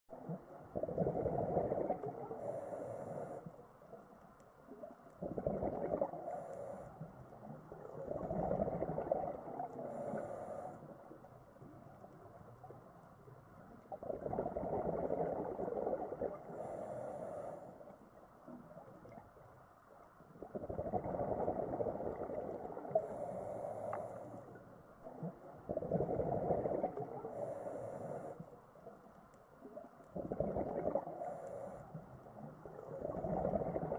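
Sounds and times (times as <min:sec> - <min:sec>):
bubbles gurgling underwater: 0:00.1 - 0:02.3, 0:05.2 - 0:06.3, 0:07.7 - 0:09.8, 0:13.9 - 0:16.7, 0:20.3 - 0:23.0, 0:25.0 - 0:27.2, 0:29.6 - 0:31.1, 0:32.6 - 0:33.9.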